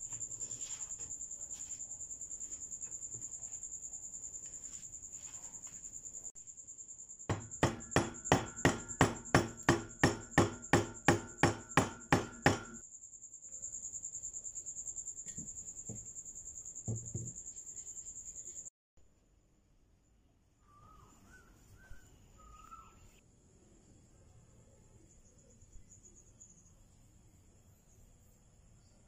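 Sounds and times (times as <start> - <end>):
high insect-like chirring: 0.0 - 18.7.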